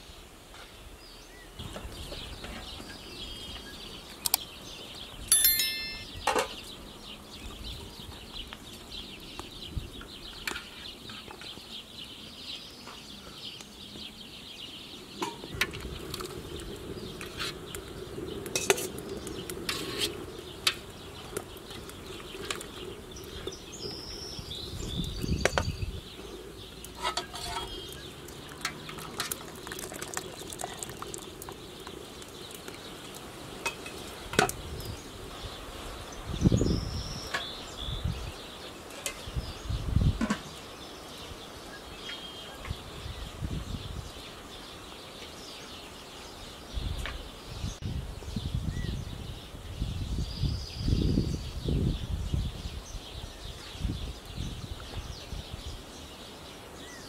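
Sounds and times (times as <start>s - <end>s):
ringing metal clang: 5.3s - 6.5s.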